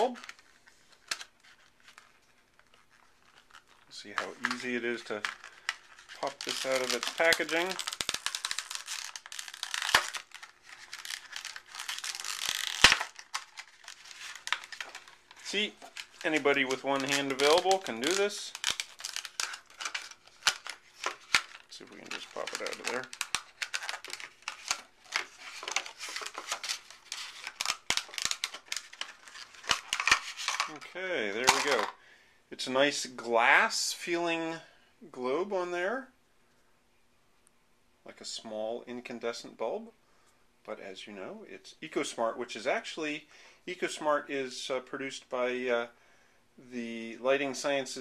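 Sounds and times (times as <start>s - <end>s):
plastic packaging crinkling: 0.0s - 32.0s.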